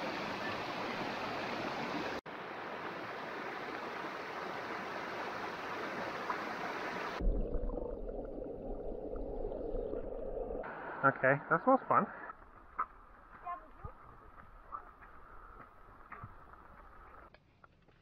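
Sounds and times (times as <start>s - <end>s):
stream water rushing: 0.0s - 7.2s
low rumble: 7.2s - 11.0s.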